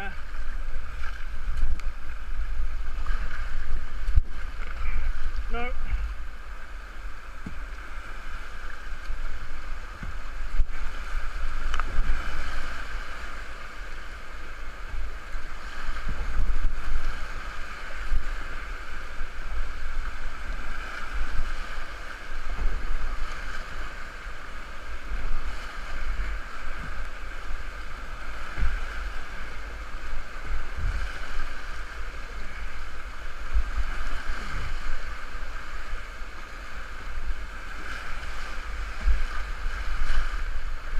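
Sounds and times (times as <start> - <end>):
low thumps of water: 0.0 - 12.8, 22.2 - 31.9
whitewater rushing: 0.0 - 40.9
wind buffeting the microphone: 0.0 - 40.9.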